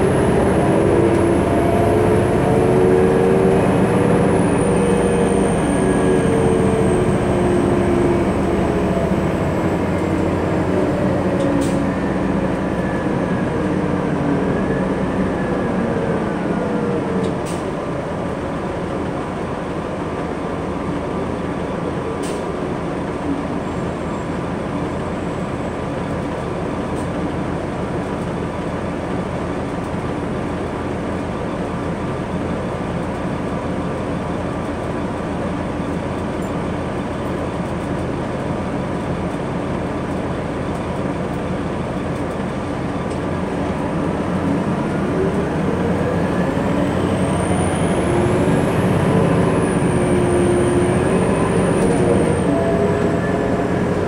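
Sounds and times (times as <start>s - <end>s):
transmission whine: 0.0s - 17.4s
bus diesel engine running: 0.0s - 54.0s
road rumble: 0.0s - 54.0s.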